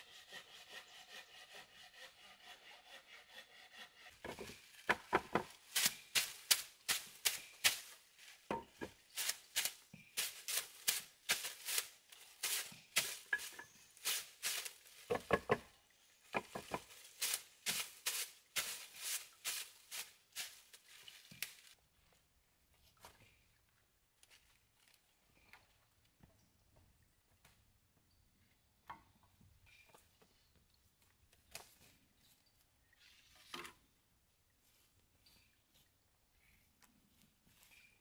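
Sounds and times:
knife chopping greens on wood: 4.2s - 7.8s.

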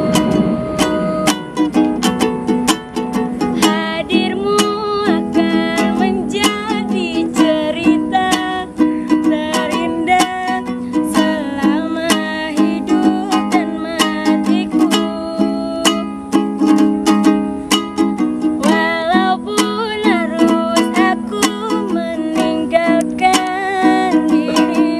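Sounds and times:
ukulele strumming: 0.0s - 24.9s
woman singing: 3.4s - 16.2s, 18.5s - 24.9s.

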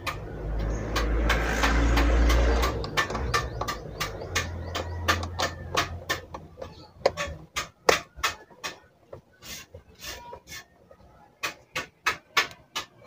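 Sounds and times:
hard plastic clicks and knocks: 0.0s - 9.3s
plastic scraping rubs: 0.0s - 13.0s.

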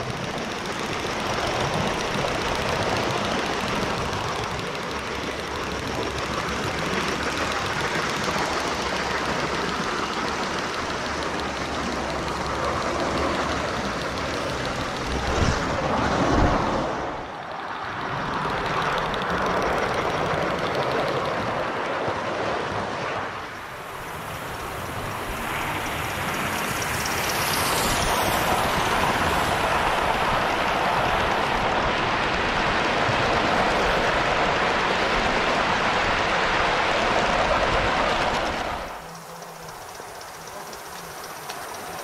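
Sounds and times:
model train running on track: 0.0s - 42.0s.

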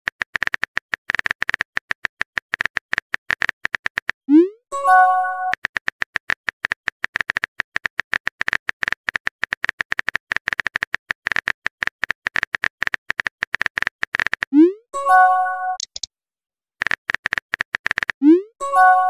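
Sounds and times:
keyboard typing taps: 5.3s - 14.5s, 15.8s - 16.1s, 16.8s - 18.2s.

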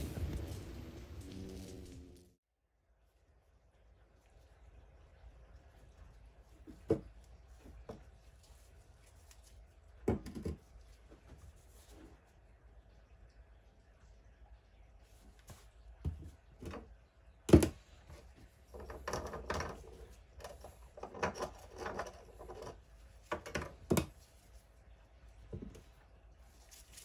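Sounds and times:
casting flask knocking on worktop: 10.1s - 10.6s
rubbing and scraping: 18.1s - 24.8s.

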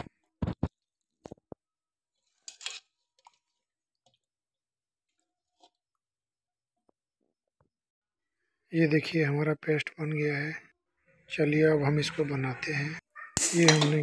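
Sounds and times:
clicks and knocks on steel jar: 13.4s - 14.0s.

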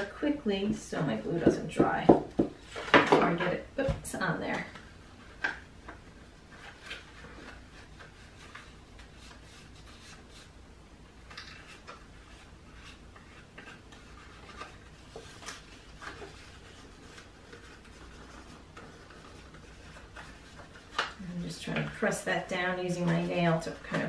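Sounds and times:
paper rustling: 4.5s - 10.5s, 11.2s - 24.0s.

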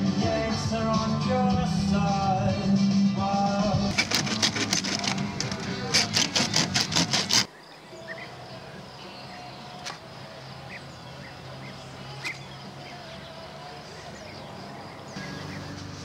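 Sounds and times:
faint chirps: 7.5s - 16.0s.

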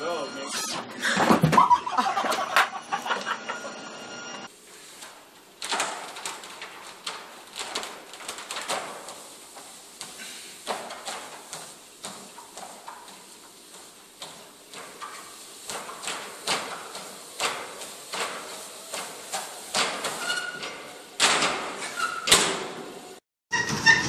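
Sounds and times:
hands slapping treadmill belt: 5.0s - 22.7s.

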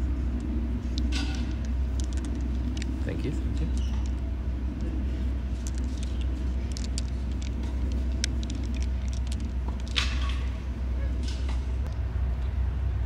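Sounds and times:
steady low rumble: 0.0s - 13.0s
glass marbles clicking together: 1.0s - 4.2s, 5.6s - 10.6s.

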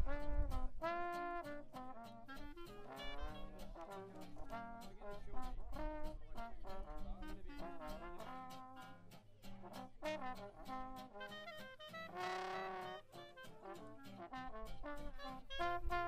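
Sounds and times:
acoustic guitar strumming chords: 0.0s - 16.0s
clarinet: 0.0s - 16.0s
trombone: 0.0s - 16.0s.

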